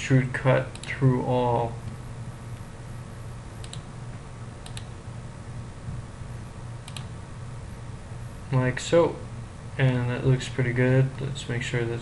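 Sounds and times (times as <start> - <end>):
steady low hum: 0.0 - 12.0
computer mouse double clicks: 3.6 - 3.9, 6.8 - 7.1.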